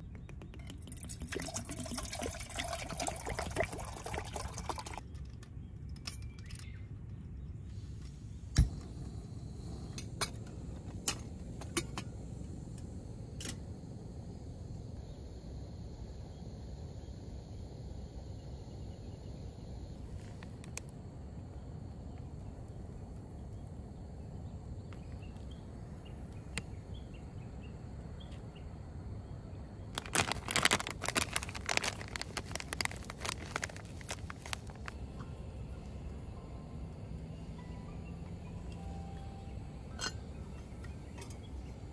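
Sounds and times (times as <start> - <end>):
low background rumble: 0.0 - 41.9
light clinks of cup and utensils: 39.9 - 41.5.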